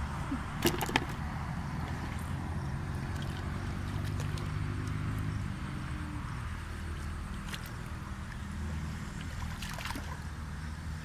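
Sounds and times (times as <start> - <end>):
low engine drone: 0.0 - 11.0
hands sloshing in muddy water: 0.3 - 5.0, 6.8 - 8.2, 9.2 - 10.3
small splashes: 0.6 - 5.3, 6.8 - 8.4, 9.1 - 10.4.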